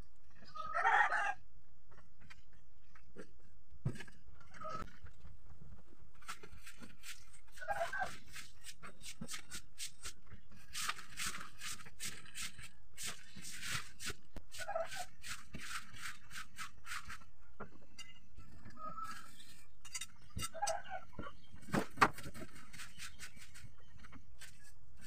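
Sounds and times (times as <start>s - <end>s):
broom sweeping floor: 6.2s - 17.3s.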